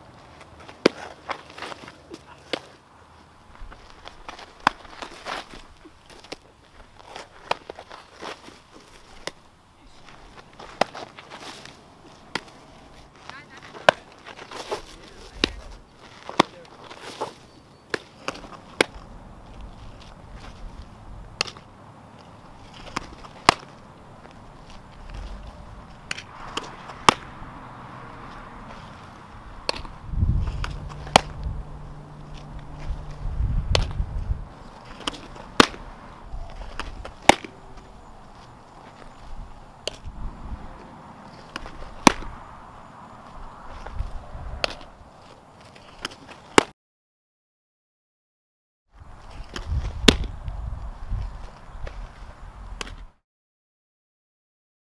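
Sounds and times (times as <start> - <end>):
balls smacking into leather gloves: 0.4 - 2.7, 3.6 - 6.4, 7.0 - 9.4, 10.1 - 17.3, 17.9 - 27.4, 29.6 - 31.5, 32.3 - 34.1, 34.8 - 39.1, 39.8 - 40.1, 40.8 - 42.4, 43.3 - 44.9, 49.4 - 50.4.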